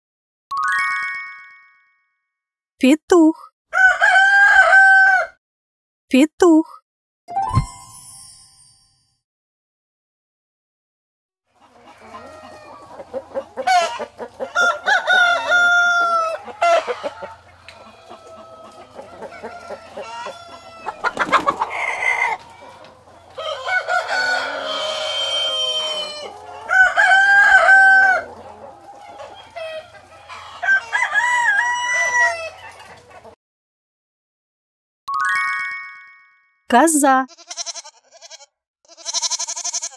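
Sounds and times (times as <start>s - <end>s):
roosters crowing: 3.7s - 5.4s, 11.6s - 33.2s
chickens clucking: 11.5s - 33.4s.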